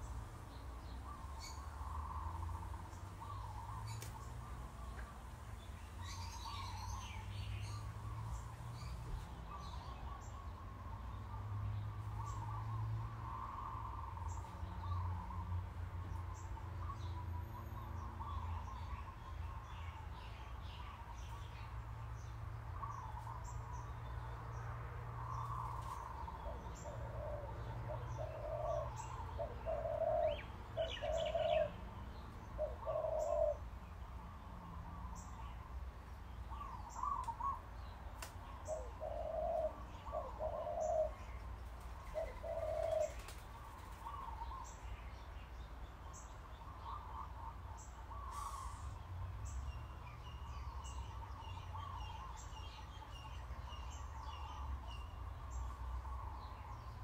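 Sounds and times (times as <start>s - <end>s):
birds chirping: 0.0s - 15.4s, 16.0s - 57.0s
bird hooting: 26.5s - 31.8s, 32.6s - 33.6s, 42.1s - 43.2s.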